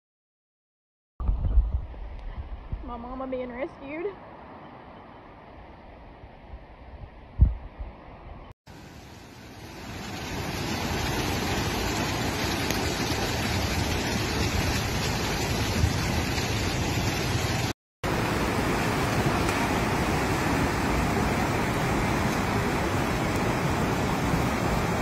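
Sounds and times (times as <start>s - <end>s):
floodwater rushing: 8.7s - 25.0s.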